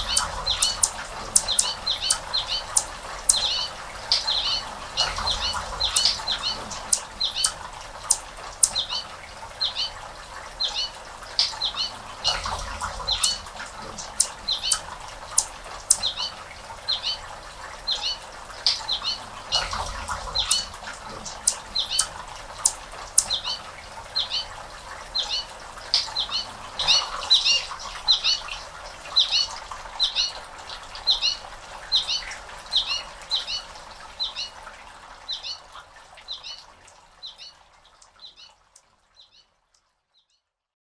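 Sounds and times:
hummingbird wings humming: 0:00.0 - 0:09.0, 0:11.4 - 0:16.3, 0:18.7 - 0:23.7
small bird high chirps: 0:00.0 - 0:09.1, 0:13.1 - 0:13.4, 0:14.0 - 0:14.8, 0:21.4 - 0:23.6.

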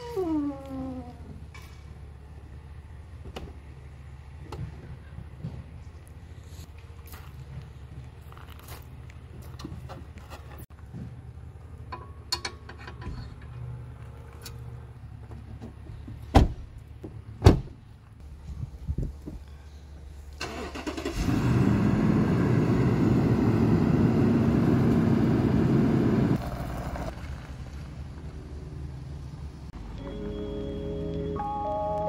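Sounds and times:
car engine starting and idling: 0:20.3 - 0:32.0.

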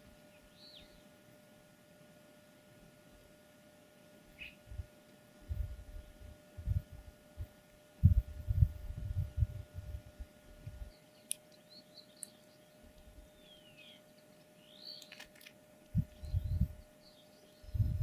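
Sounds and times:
birds twittering: 0:00.2 - 0:01.2, 0:04.3 - 0:04.9, 0:10.6 - 0:18.0
low rumbling thumps: 0:08.0 - 0:10.9
sharp clicks: 0:14.4 - 0:16.0.

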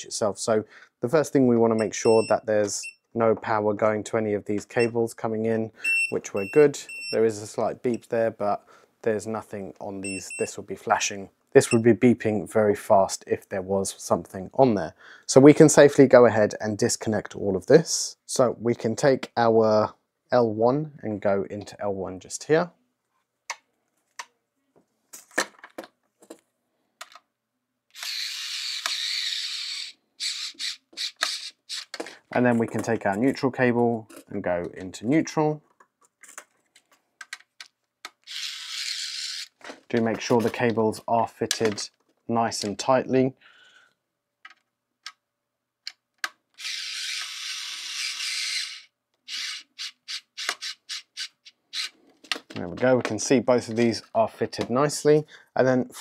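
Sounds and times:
clicks and taps of wires and screwdriver: 0:27.0 - 0:27.3, 0:35.7 - 0:38.2, 0:45.8 - 0:46.4
screwdriver rasping: 0:27.9 - 0:32.0, 0:38.2 - 0:39.6, 0:46.6 - 0:51.9.

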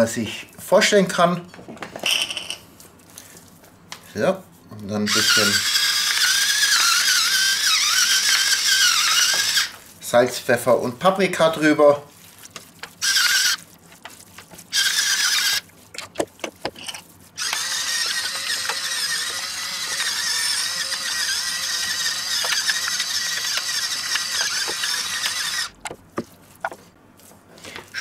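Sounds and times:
electric spice mill grinding: 0:05.1 - 0:09.8, 0:13.0 - 0:13.6, 0:14.7 - 0:15.6, 0:16.8 - 0:25.8.

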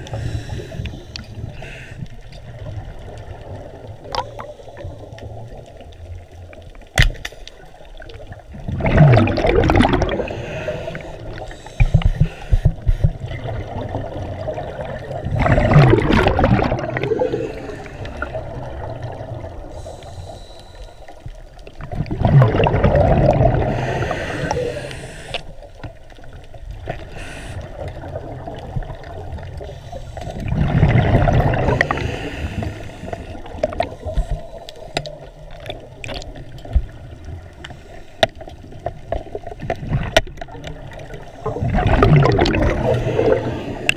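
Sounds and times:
diver breathing through regulator: 0:00.0 - 0:02.2, 0:09.8 - 0:13.4, 0:17.0 - 0:18.5, 0:19.6 - 0:21.3, 0:23.4 - 0:25.6, 0:27.0 - 0:27.9, 0:31.5 - 0:35.2, 0:42.6 - 0:43.9
exhaled bubbles gurgling: 0:07.7 - 0:20.4, 0:21.3 - 0:43.9.

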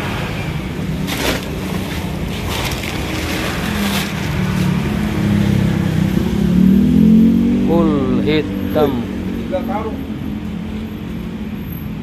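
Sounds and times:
plastic wrapping crinkling: 0:01.1 - 0:04.4.

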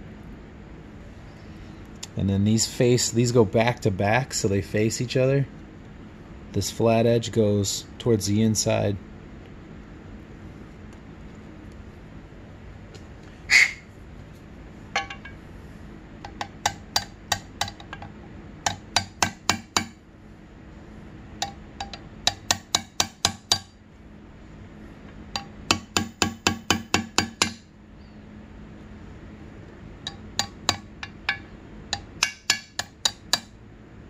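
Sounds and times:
metal clatter: 0:14.9 - 0:15.4
hammer tapping metal socket: 0:16.2 - 0:20.0, 0:21.4 - 0:23.7, 0:25.4 - 0:27.6, 0:30.0 - 0:33.5.

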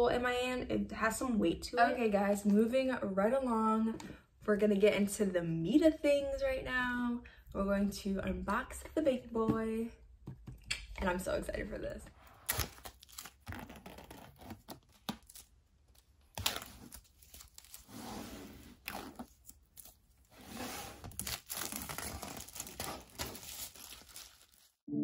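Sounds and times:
plastic wrap crinkling: 0:12.4 - 0:17.9, 0:21.0 - 0:24.8.

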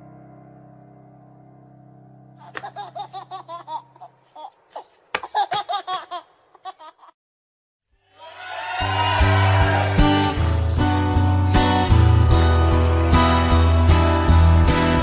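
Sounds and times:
high-pitched giggling laughter: 0:02.4 - 0:07.2.

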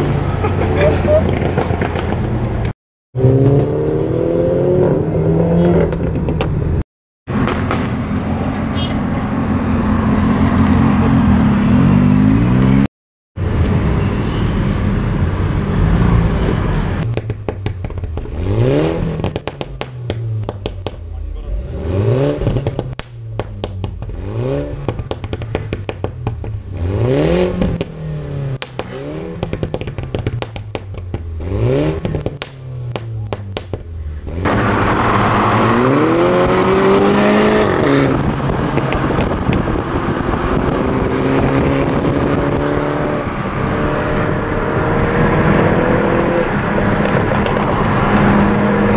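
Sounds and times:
exhaust crackles and pops: 0:01.1 - 0:02.8, 0:16.0 - 0:21.6, 0:22.2 - 0:35.7, 0:37.6 - 0:43.5, 0:46.4 - 0:48.9
engine revving: 0:03.2 - 0:06.5, 0:21.2 - 0:23.0, 0:26.7 - 0:29.6, 0:34.2 - 0:48.9
car engine accelerating: 0:31.4 - 0:48.9.

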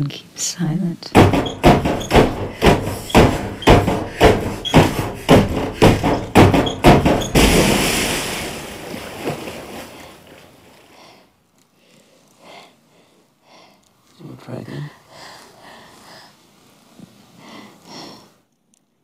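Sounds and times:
heavy percussion hits: 0:01.2 - 0:08.6.

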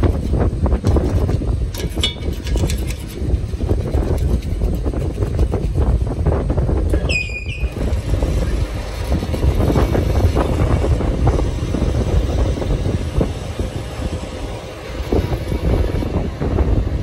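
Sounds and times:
lathe running: 0:00.0 - 0:17.0
short high squeal: 0:07.0 - 0:08.5.

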